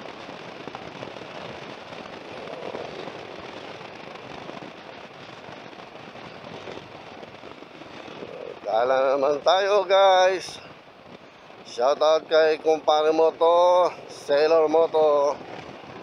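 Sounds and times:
road noise: 0:00.0 - 0:16.0
wind buffeting microphone: 0:00.0 - 0:16.0.

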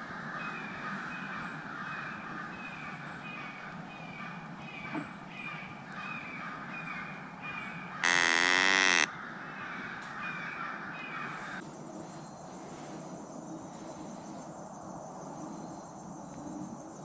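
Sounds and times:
downward-sliding animal calls: 0:08.0 - 0:09.1
loud pitched animal call: 0:08.0 - 0:09.1.

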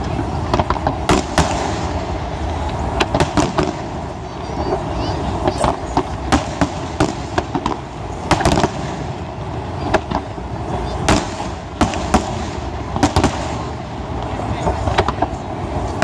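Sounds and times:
firework shells bursting: 0:05.3 - 0:09.3.

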